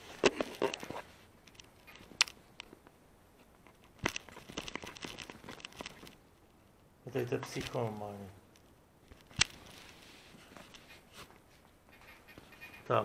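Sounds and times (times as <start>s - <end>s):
fabric rustling: 9.0s - 12.6s.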